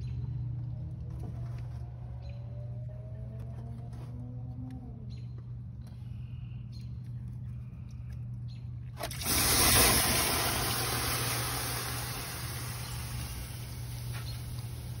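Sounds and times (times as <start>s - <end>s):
water gushing out of drain: 9.0s - 15.0s.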